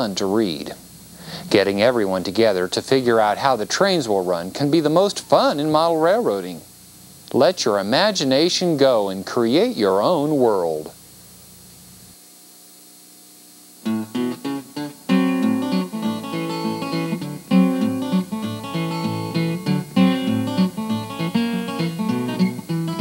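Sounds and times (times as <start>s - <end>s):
faint low hum: 0.0s - 23.0s
acoustic guitar music: 13.8s - 23.0s.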